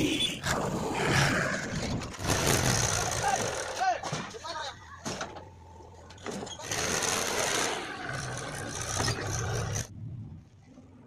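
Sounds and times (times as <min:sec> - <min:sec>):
tractor diesel engine under load: 0:01.5 - 0:04.0, 0:05.4 - 0:09.9.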